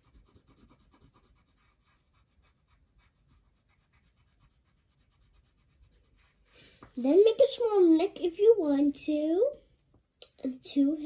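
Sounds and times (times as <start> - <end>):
marker strokes on paper: 0.0 - 7.4.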